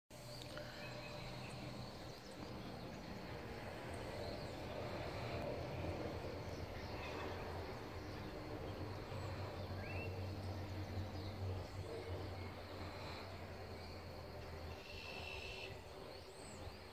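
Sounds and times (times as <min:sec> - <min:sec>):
steady low hum: 0:00.2 - 0:16.9
faint bird chirps: 0:11.5 - 0:16.9.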